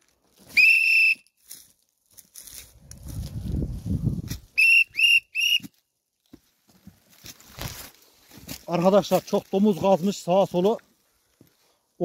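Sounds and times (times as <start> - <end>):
plastic whistle blasts: 0.5 - 1.3, 4.6 - 5.7.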